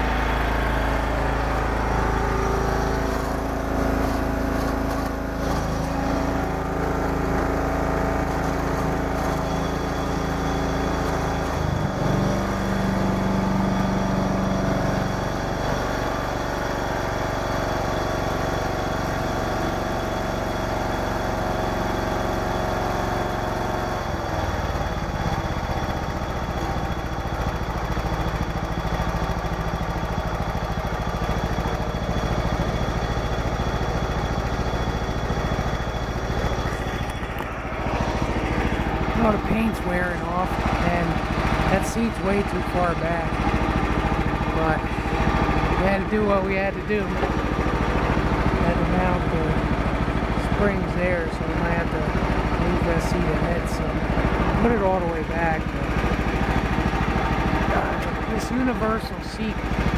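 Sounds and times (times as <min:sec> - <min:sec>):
lawn tractor engine running: 0:00.0 - 0:59.9.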